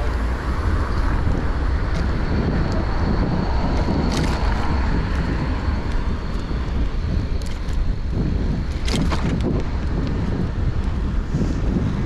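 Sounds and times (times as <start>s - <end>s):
road noise: 0.0s - 12.0s
wind buffeting microphone: 0.0s - 12.0s
small clicks and rattles: 8.6s - 11.0s.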